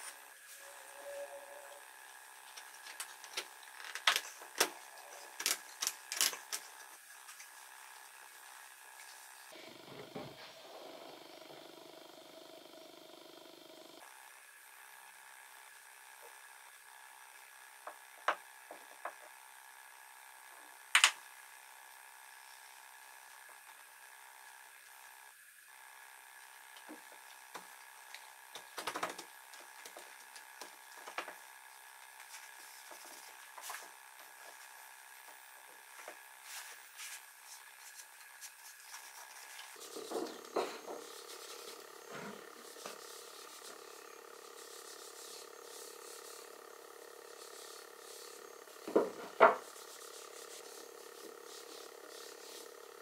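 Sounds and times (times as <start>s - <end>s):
wood rubbing: 36.5s - 44.0s.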